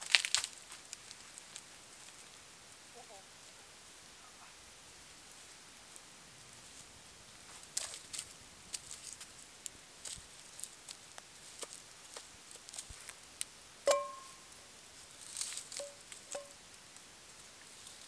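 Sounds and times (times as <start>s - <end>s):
sharp snaps and pops: 0.0s - 2.3s, 7.5s - 14.3s
wood fire crackling: 0.0s - 18.0s
frying pan metallic clank: 13.9s - 14.4s.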